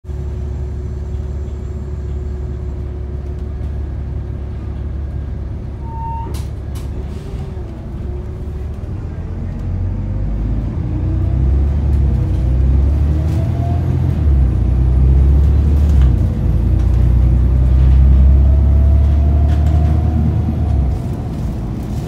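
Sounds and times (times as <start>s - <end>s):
bus diesel engine rumbling: 0.0s - 22.0s
short tone: 5.8s - 6.5s
rising engine whine: 7.7s - 22.0s.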